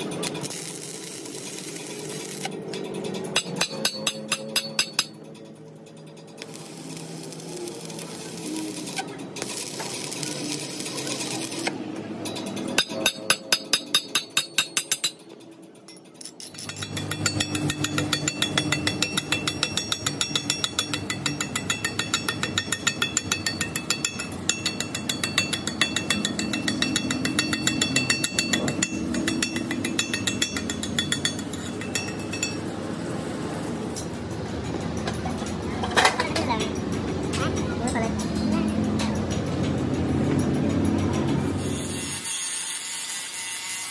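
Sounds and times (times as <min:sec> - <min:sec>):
chipping hammer tapping on steel: 0:16.4 - 0:32.6.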